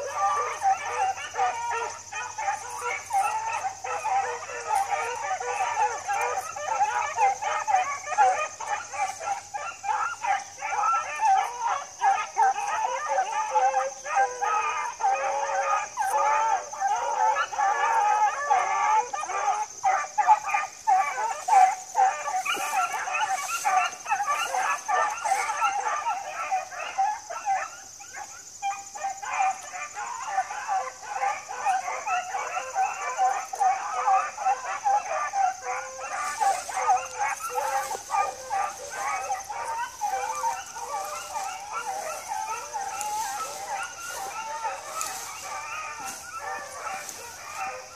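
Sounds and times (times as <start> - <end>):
dogs baying and yipping: 0.0 - 47.9.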